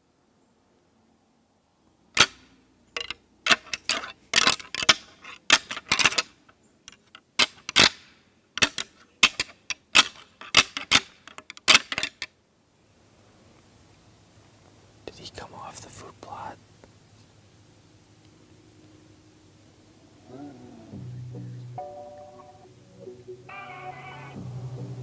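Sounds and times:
antlers clashing: 3.0s - 8.0s.

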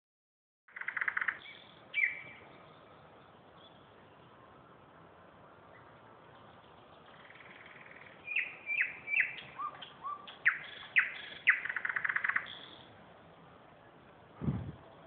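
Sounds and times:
songbird singing: 0.7s - 15.0s
low thump: 14.4s - 14.8s.

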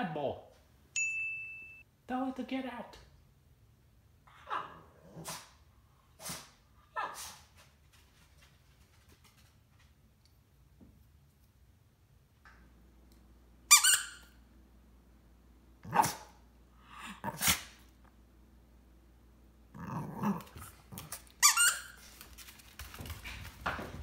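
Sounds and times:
dog barking high-pitched: 4.4s - 5.4s, 6.9s - 7.4s, 15.8s - 16.3s.

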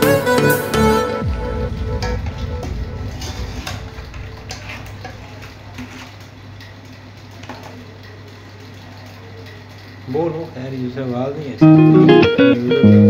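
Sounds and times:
steady low hum: 0.8s - 8.6s
metal spoon scraping a pot: 3.2s - 6.2s.

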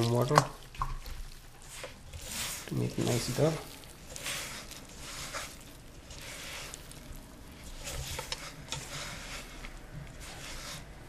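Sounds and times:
hand mixing dough in bowl: 0.0s - 11.0s.

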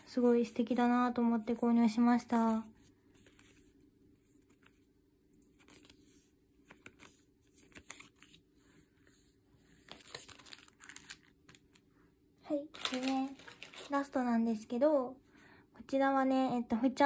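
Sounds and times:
plastic stickers rustling and crinkling: 0.0s - 11.9s, 12.5s - 14.3s.

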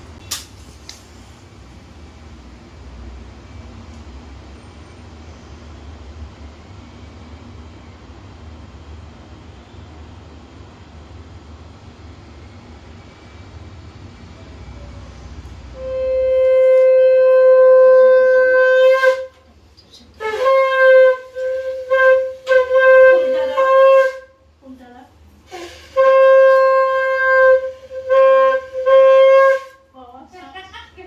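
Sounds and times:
conch shell blasts: 15.8s - 19.4s, 20.2s - 24.4s, 25.5s - 29.8s.

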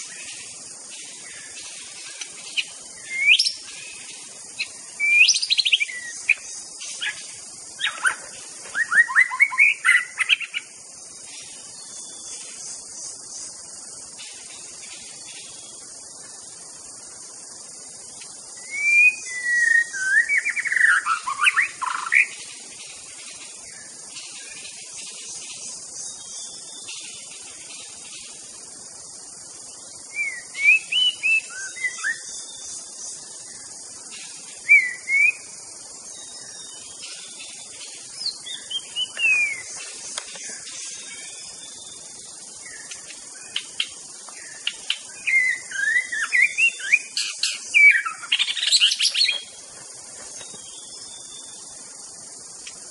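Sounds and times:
steady high hiss: 0.0s - 52.9s
bird singing whistled phrases: 3.0s - 3.6s, 5.0s - 6.4s, 7.8s - 10.6s, 18.6s - 22.3s, 30.1s - 32.3s, 34.6s - 35.5s, 38.2s - 39.7s, 45.2s - 49.4s.

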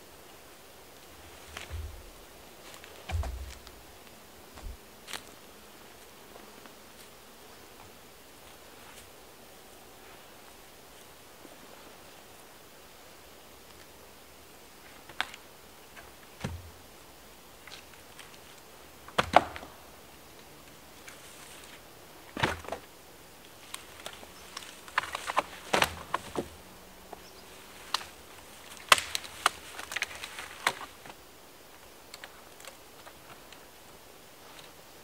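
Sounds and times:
dry branches snapping: 1.4s - 5.3s, 23.6s - 26.6s, 27.6s - 31.2s.

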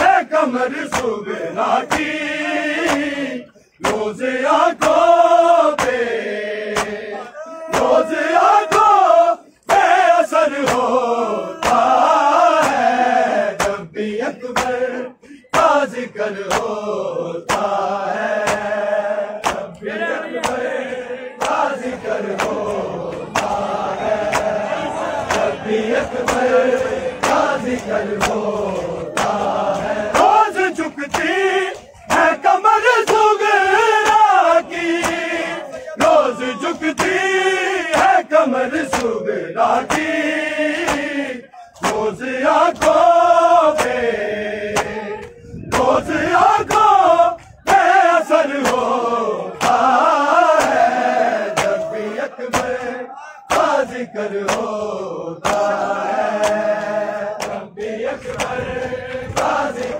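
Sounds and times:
men chanting in unison: 0.0s - 59.9s
hands slapping chests: 0.8s - 1.2s, 1.8s - 2.1s, 2.8s - 3.2s, 3.8s - 4.1s, 4.8s - 5.1s, 5.7s - 6.1s, 6.7s - 7.0s, 10.6s - 11.0s, 11.6s - 12.9s, 13.6s - 13.9s, 14.6s - 14.8s, 16.4s - 16.8s, 17.4s - 17.8s, 18.4s - 18.8s, 19.4s - 20.6s, 21.4s - 30.4s, 31.0s - 32.4s, 33.0s - 38.2s, 38.8s - 39.2s, 39.8s - 41.2s, 41.8s - 43.2s, 43.8s - 44.0s, 44.7s - 46.0s, 48.6s - 48.9s, 49.6s - 54.8s, 55.4s - 59.9s.

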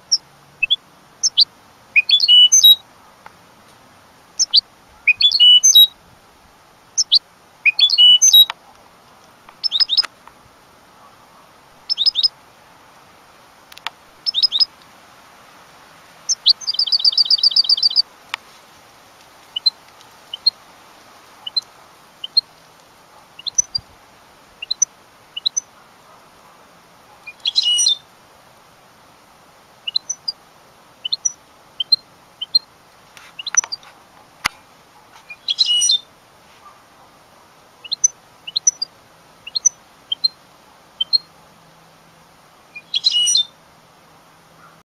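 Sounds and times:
bird trill: 0.0s - 2.8s, 4.4s - 5.9s, 7.0s - 8.5s, 9.6s - 10.1s, 11.9s - 12.3s, 14.2s - 14.7s, 16.3s - 18.0s, 23.4s - 23.8s, 24.6s - 25.7s, 27.3s - 28.0s, 29.9s - 30.4s, 35.3s - 36.0s, 37.8s - 38.9s, 39.5s - 40.4s, 42.8s - 43.5s
finch twittering chirps: 0.0s - 2.8s, 4.4s - 5.9s, 7.0s - 8.5s, 9.6s - 10.1s, 11.8s - 12.3s, 14.2s - 14.7s, 16.3s - 18.0s, 19.6s - 20.6s, 21.4s - 22.4s, 23.4s - 23.8s, 24.6s - 25.7s, 27.3s - 28.0s, 29.9s - 30.4s, 31.0s - 32.7s, 33.4s - 33.8s, 35.3s - 36.0s, 37.8s - 38.9s, 39.5s - 40.4s, 41.0s - 41.3s, 42.8s - 43.5s.

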